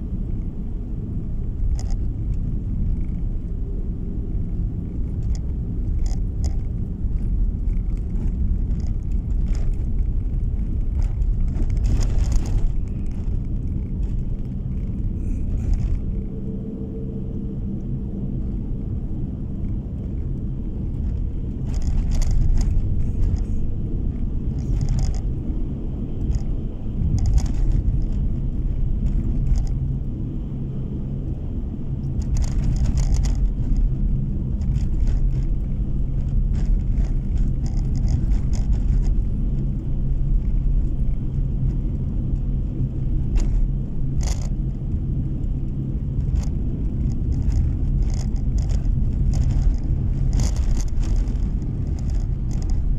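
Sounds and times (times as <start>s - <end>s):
tyres and engine rumbling: 0.0s - 52.9s
crackly scrapes on snow: 6.6s - 16.2s, 46.2s - 52.9s.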